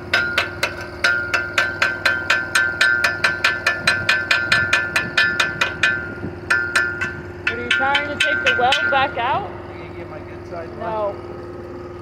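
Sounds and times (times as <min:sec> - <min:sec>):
chipping hammer striking metal: 0:00.0 - 0:09.4
steady low hum: 0:00.0 - 0:12.0.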